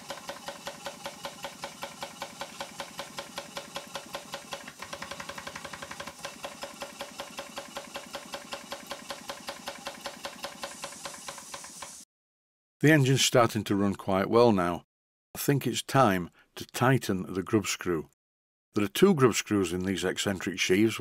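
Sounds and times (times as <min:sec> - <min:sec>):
model steam engine running: 0:00.0 - 0:12.0.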